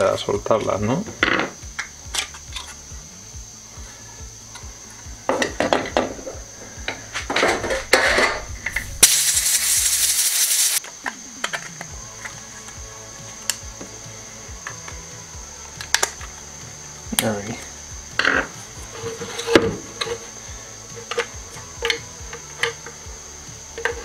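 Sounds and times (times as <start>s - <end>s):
compressed air burst from blow gun: 8.8s - 10.8s.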